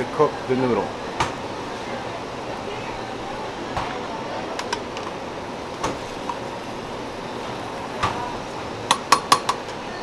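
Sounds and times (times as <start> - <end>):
rushing kitchen background noise: 0.0 - 10.0
metal spoon clinking on pot: 8.9 - 9.6.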